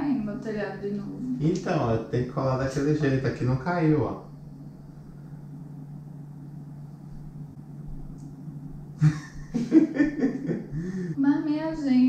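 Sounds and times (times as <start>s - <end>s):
steady low hum: 0.0s - 12.0s
people laughing: 9.0s - 11.1s.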